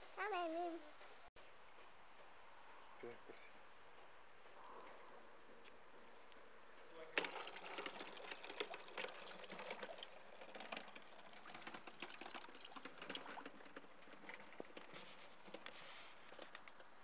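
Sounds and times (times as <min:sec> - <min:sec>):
water drops pattering and trickling: 0:07.2 - 0:15.0.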